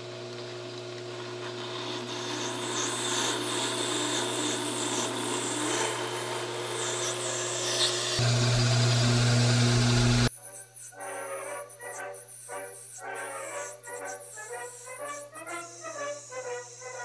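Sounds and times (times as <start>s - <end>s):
lathe motor hum: 0.0s - 10.3s.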